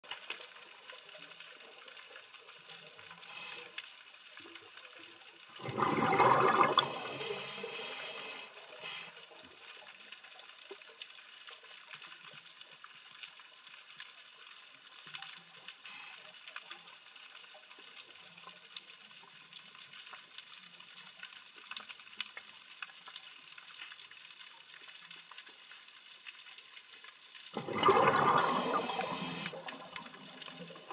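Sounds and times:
faint crackling and ticking: 0.0 - 30.9
gurgling exhaled bubbles: 5.6 - 7.8, 27.5 - 30.9.

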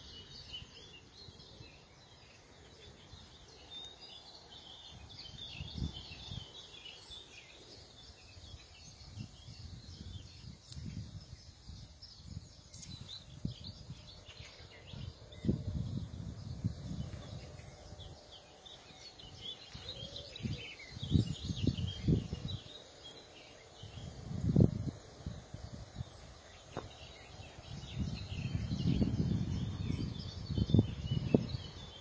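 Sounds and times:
small birds chirping: 0.0 - 32.0
low thumps on microphone: 26.7 - 27.0.

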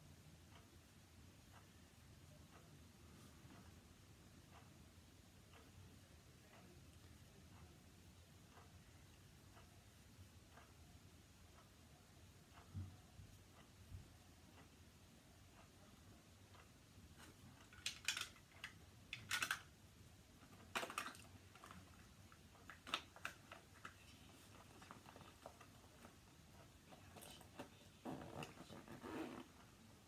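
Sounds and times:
small objects clicking: 17.6 - 19.7
zippered fabric pouch rustling: 28.0 - 29.5.

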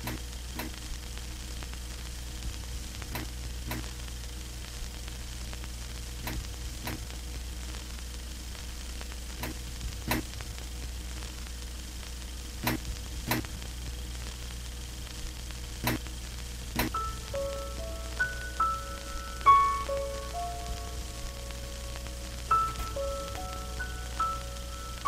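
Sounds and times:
low hum: 0.0 - 25.0
static hiss: 0.0 - 25.0.

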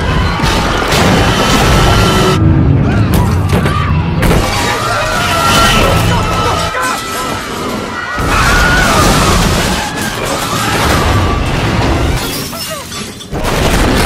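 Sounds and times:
heavy low rumble: 0.4 - 6.5
sharp crashes: 0.4 - 12.4
glass shattering: 8.2 - 14.0.

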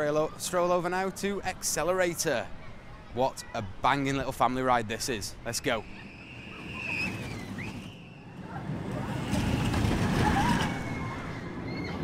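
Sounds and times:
roller coaster train rumbling past: 5.6 - 12.0.

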